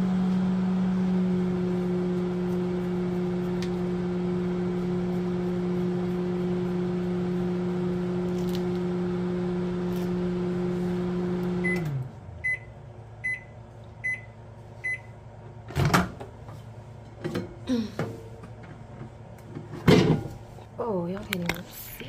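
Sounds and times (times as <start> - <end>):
microwave oven humming: 0.0 - 21.6
microwave beeping: 6.9 - 16.2.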